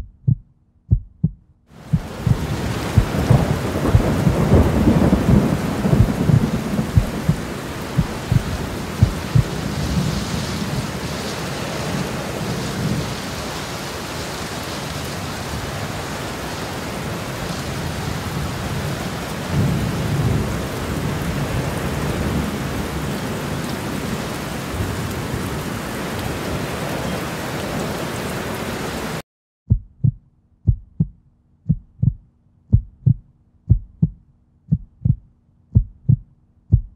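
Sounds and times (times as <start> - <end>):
heartbeat sound effect: 0.0 - 4.3, 5.3 - 7.4, 8.0 - 9.6, 29.7 - 36.9
low rumbling thumps: 0.0 - 9.6, 29.7 - 36.9
steady rushing noise: 1.8 - 4.6, 5.3 - 10.0.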